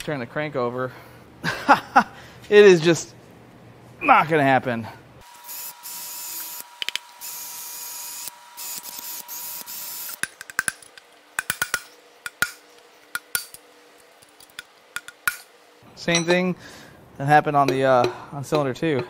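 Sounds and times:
cordless power tool running: 0:05.2 - 0:10.2.

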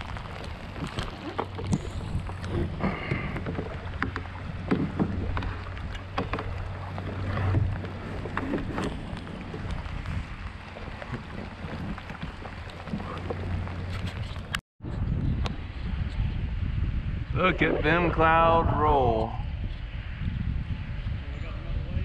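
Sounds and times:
water splashing and dripping: 0:00.0 - 0:14.6
wind rumble on microphone: 0:00.0 - 0:22.0.

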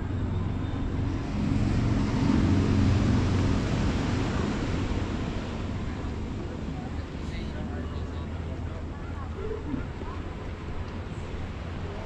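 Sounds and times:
vehicle passing by: 0:00.0 - 0:06.2
outdoor background noise: 0:00.0 - 0:12.0.

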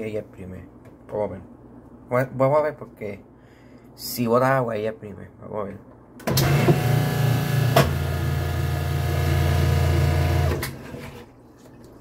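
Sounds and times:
washing machine motor humming: 0:06.2 - 0:12.0.

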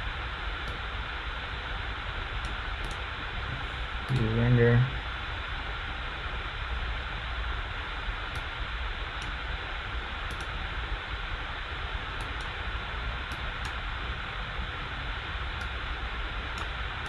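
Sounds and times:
faint mouse clicks: 0:02.4 - 0:03.0, 0:04.1 - 0:04.3, 0:10.3 - 0:10.6.

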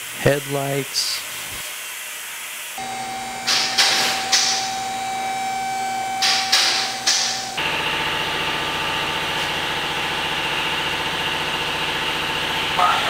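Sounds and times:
steady hum: 0:02.8 - 0:12.8.

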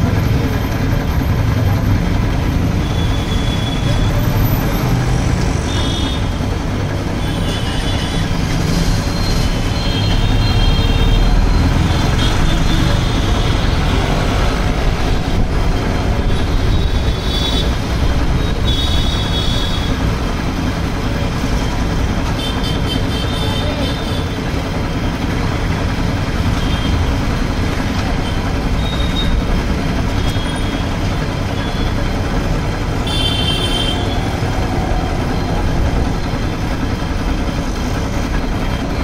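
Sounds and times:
air compressor running: 0:00.0 - 0:39.0.

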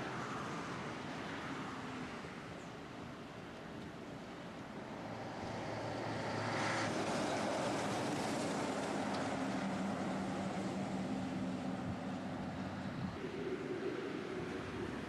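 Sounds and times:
truck engine hum: 0:04.8 - 0:15.0.

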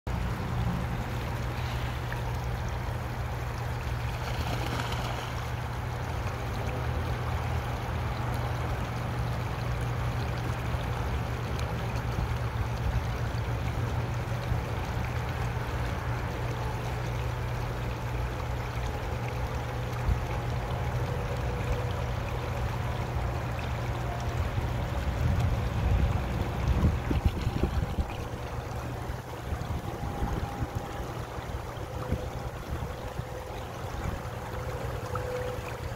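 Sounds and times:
creek water running: 0:00.1 - 0:35.9.

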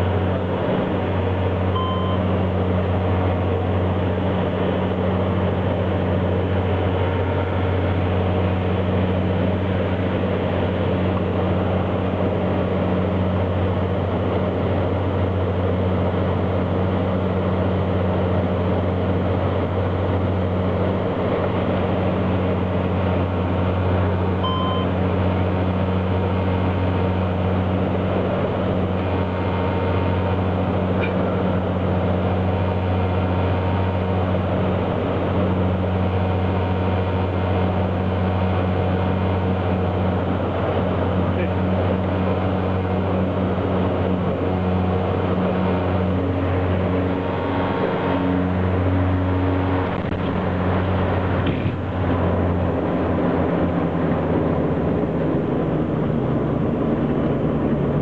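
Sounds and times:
turboprop engines droning: 0:00.0 - 0:58.0
short beep: 0:01.7 - 0:02.3, 0:24.4 - 0:25.0.

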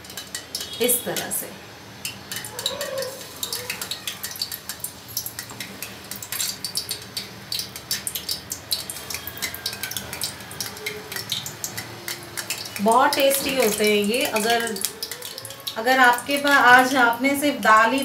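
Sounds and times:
batter frying in hot oil: 0:00.0 - 0:18.0.

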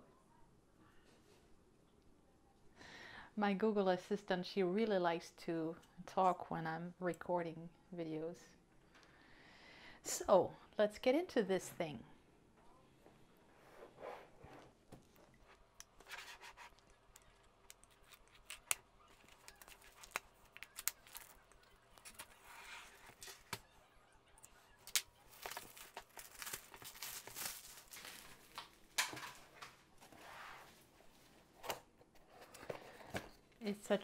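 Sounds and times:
plastic wrap crinkling and tearing: 0:15.5 - 0:23.6, 0:24.7 - 0:29.7.

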